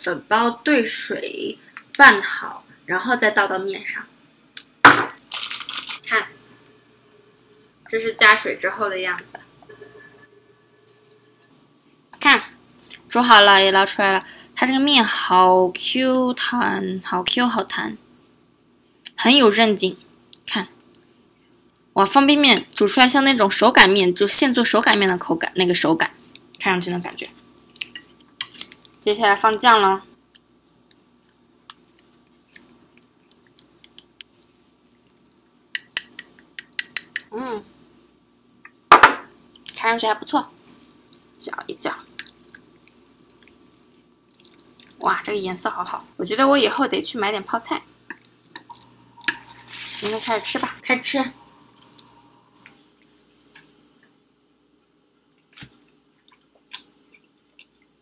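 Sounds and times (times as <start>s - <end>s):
sauce pouring ticks and clicks: 30.3s - 37.3s, 40.6s - 45.0s, 48.1s - 49.5s
slurping and chewing noodles: 42.1s - 45.0s.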